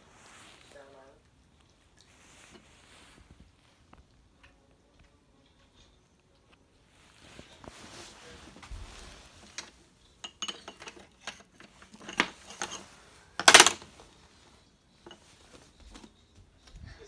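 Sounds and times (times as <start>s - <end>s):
crockery clatter: 9.4s - 13.9s.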